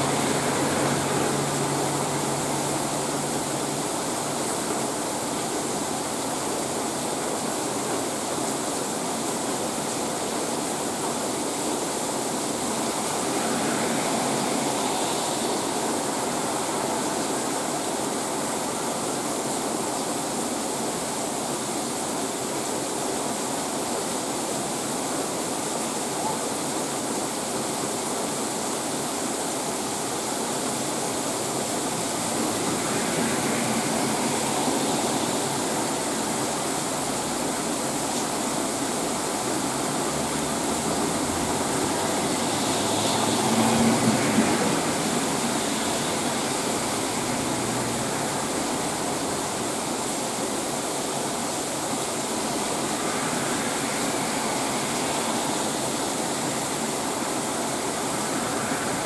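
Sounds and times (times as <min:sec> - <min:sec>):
heavy rain on leaves: 0:00.0 - 0:59.0.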